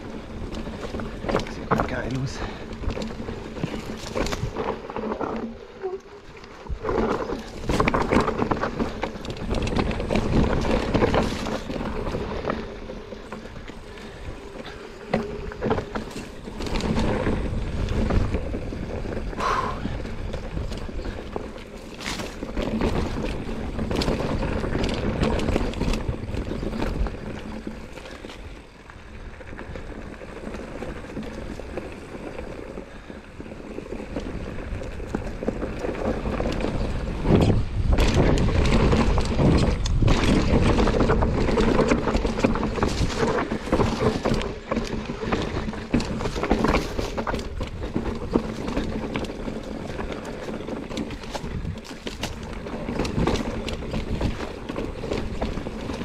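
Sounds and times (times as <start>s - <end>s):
tyres rolling over dirt and stones: 0.0s - 56.0s
wind on microphone: 33.8s - 56.0s.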